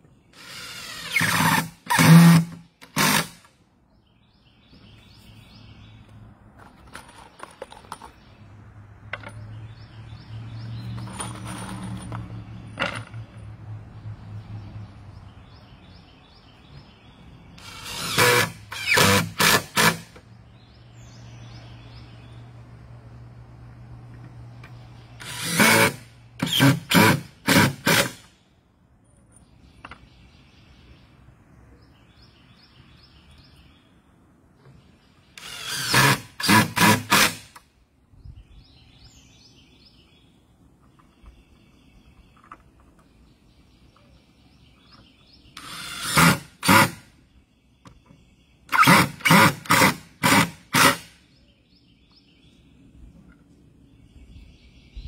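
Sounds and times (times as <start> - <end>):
cordless drill driving screws: 0.4 - 3.5, 17.6 - 20.2, 25.2 - 28.2, 35.4 - 37.5, 45.6 - 47.0
birds chirping faintly: 27.9 - 55.0.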